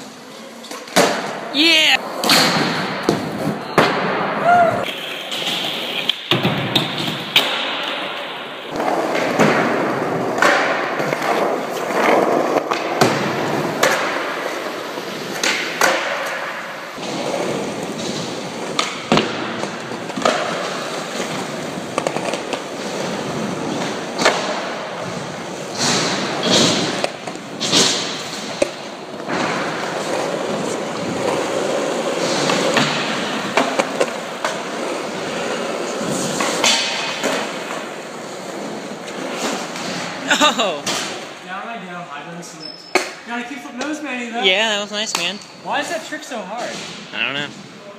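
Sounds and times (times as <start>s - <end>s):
skateboard wheels rolling: 0.0s - 41.4s
skateboard clacks: 4.8s - 40.2s.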